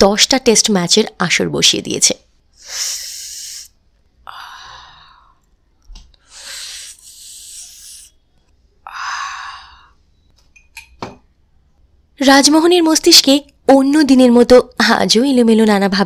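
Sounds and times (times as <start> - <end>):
person breathing deeply: 2.6 - 5.4, 6.2 - 8.2, 8.8 - 10.0.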